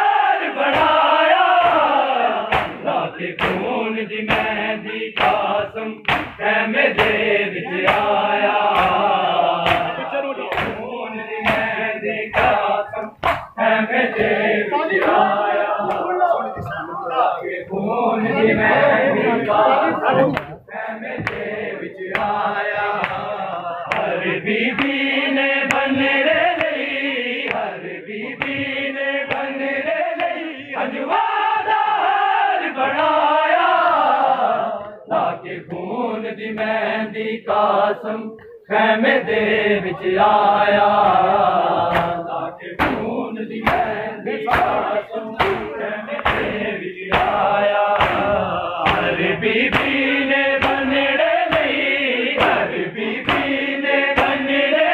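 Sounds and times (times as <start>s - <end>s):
men chanting a lament: 0.0s - 54.9s
hand slaps on chest: 1.6s - 1.9s, 2.5s - 2.8s, 3.4s - 3.7s, 5.2s - 6.4s, 7.8s - 8.1s, 9.6s - 9.9s, 10.5s - 10.8s, 13.2s - 13.6s, 41.9s - 42.2s, 45.4s - 47.4s, 48.0s - 50.0s, 50.6s - 50.9s, 51.5s - 51.8s, 53.2s - 53.6s.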